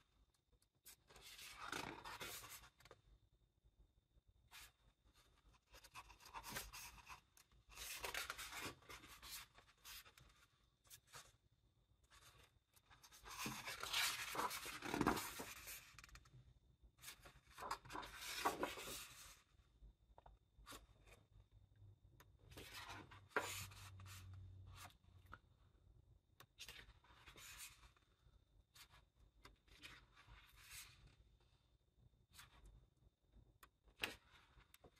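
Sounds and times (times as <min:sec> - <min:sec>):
book pages rustling: 0:00.9 - 0:03.0, 0:05.2 - 0:11.3, 0:12.1 - 0:16.4, 0:17.0 - 0:19.4, 0:28.8 - 0:31.3.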